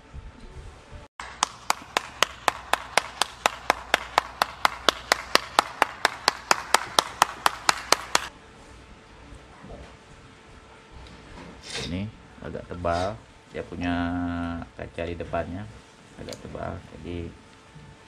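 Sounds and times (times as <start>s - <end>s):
person clapping hands: 1.2s - 8.3s.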